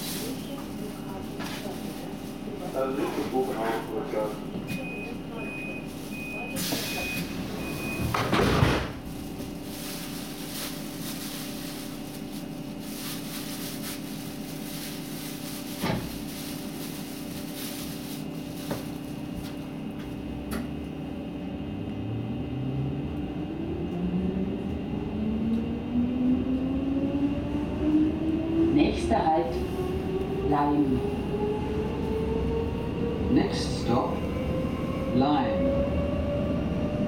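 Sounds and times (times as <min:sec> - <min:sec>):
train electrical hum: 0:00.0 - 0:37.0.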